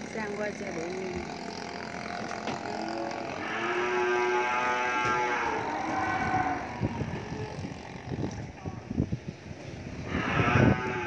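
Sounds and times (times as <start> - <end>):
cow mooing: 1.9 - 7.7, 10.0 - 11.0.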